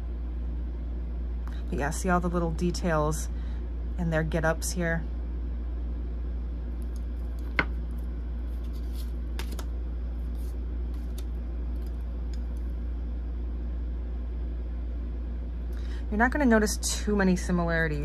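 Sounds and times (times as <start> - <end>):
low room hum: 0.0 - 18.0
cards being handled: 6.9 - 12.7.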